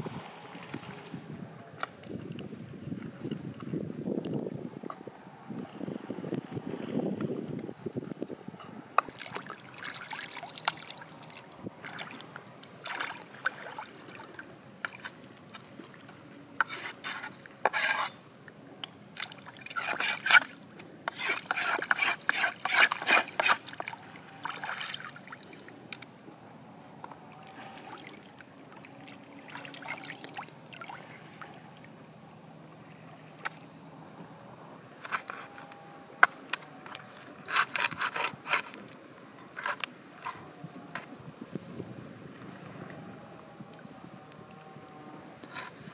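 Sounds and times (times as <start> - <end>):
water splashing and sloshing: 9.0 - 18.2, 19.1 - 26.1, 27.2 - 32.4.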